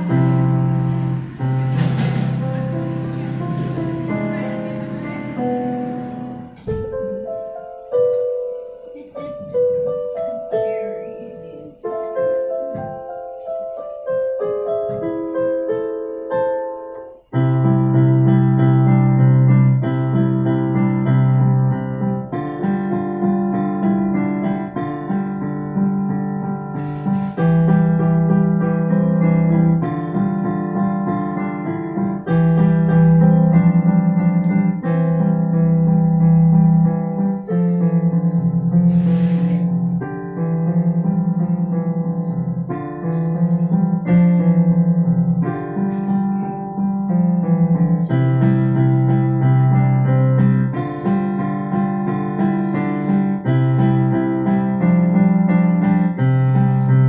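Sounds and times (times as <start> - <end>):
piano music: 0.0 - 57.0.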